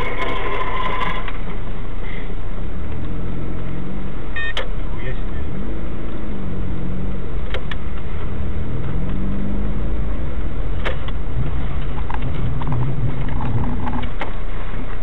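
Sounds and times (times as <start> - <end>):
car engine hum: 0.0 - 15.0
road rumble: 0.0 - 15.0.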